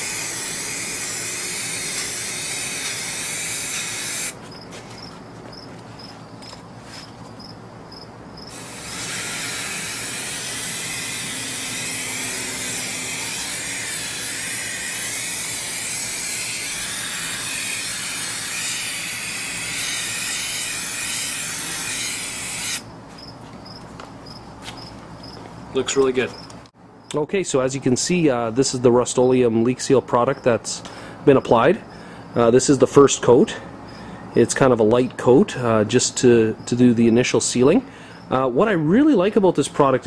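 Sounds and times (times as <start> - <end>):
aerosol can spraying hiss: 0.0 - 4.4, 8.5 - 22.8
crickets chirping: 0.0 - 27.2, 30.3 - 34.5, 36.3 - 38.5.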